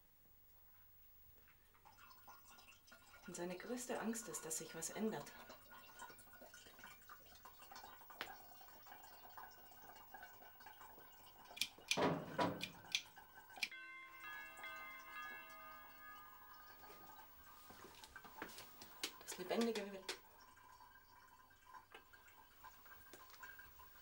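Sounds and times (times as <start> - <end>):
ringing chord of held tones: 13.7 - 18.0.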